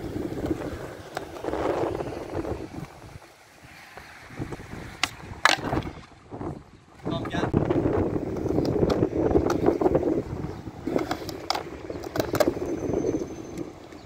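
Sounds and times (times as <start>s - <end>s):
skateboard clacks: 0.0s - 3.1s, 4.9s - 6.0s, 6.9s - 12.8s
skateboard wheels rolling on concrete: 0.0s - 14.0s.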